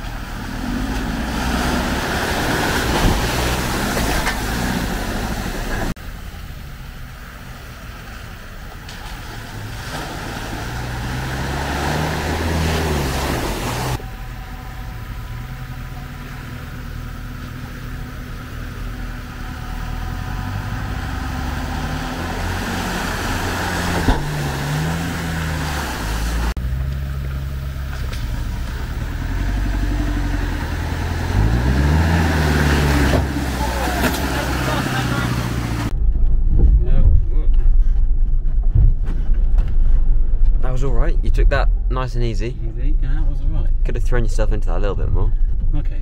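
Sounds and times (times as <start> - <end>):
off-road engines revving: 0.0 - 36.0.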